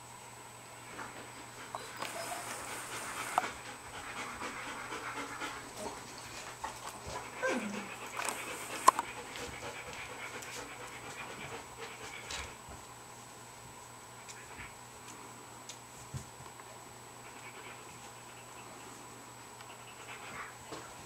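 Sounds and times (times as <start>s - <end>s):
puppies breathing: 0.8s - 12.6s, 17.2s - 21.0s
puppy whining: 1.2s - 9.1s.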